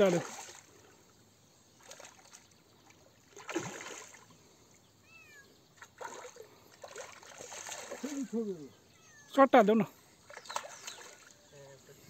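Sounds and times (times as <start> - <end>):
landing net in water: 0.0 - 1.0, 1.8 - 4.4, 5.8 - 8.5, 10.2 - 11.4
fish thrashing in water: 3.3 - 4.3, 5.8 - 8.3, 10.3 - 11.3.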